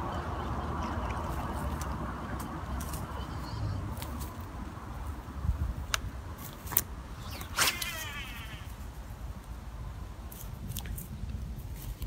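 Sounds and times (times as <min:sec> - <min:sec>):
fishing rod swish: 0:07.1 - 0:08.7.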